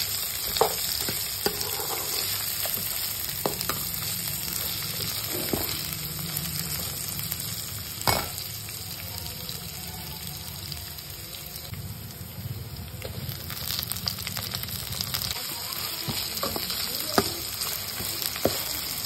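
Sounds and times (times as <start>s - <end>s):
stirring in a pan: 0.0s - 6.0s
vegetables sizzling in hot oil: 0.0s - 19.0s.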